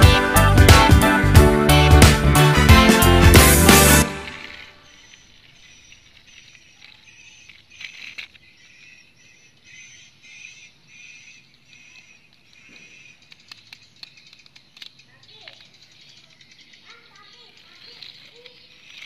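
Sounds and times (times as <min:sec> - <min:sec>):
high chirping: 0:00.0 - 0:19.0
toy truck scraping over concrete: 0:17.6 - 0:19.0.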